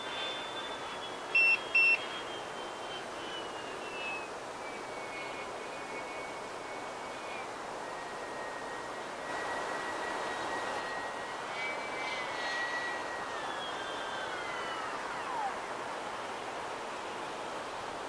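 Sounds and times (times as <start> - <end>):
electric ducted fans whining: 0.0 - 18.0
airy rush: 8.1 - 17.2.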